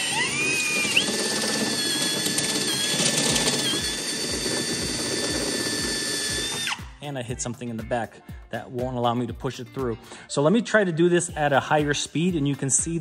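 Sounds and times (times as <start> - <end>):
drill bit grinding sheet metal: 0.0 - 6.9
drill motor whine: 0.0 - 7.0.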